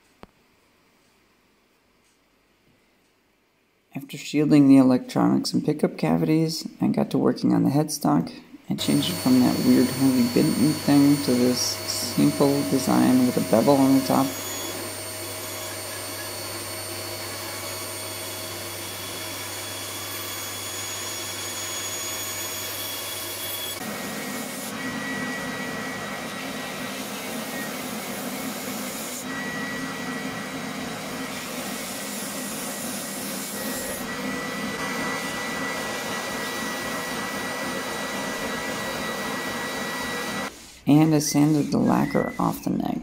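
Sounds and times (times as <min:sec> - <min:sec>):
bandsaw cutting wood: 0:08.7 - 0:42.5
belt sander grinding: 0:08.8 - 0:42.3.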